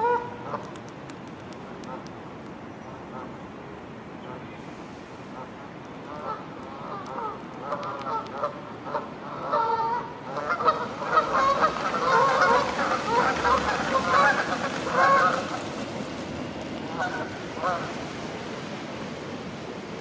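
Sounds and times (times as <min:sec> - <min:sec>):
geese honking: 0:06.2 - 0:15.8, 0:16.9 - 0:18.0.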